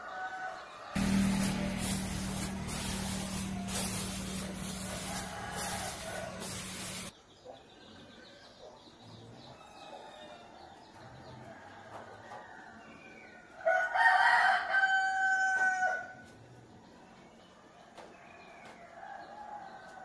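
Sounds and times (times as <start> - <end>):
rooster crowing: 0.0 - 7.1, 13.6 - 16.2.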